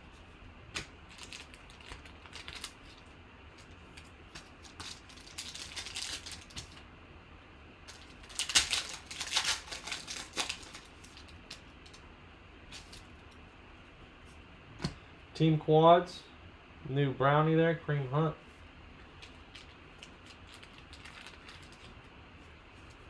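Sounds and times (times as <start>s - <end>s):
foil pack tearing and crinkling: 0.8s - 3.8s, 4.4s - 6.8s, 7.9s - 11.6s, 19.3s - 22.0s.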